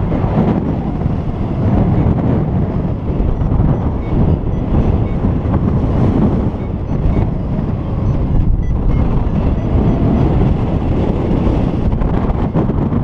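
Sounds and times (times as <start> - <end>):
wind buffeting microphone: 0.0 - 13.0
faint short high beeps: 6.5 - 10.4.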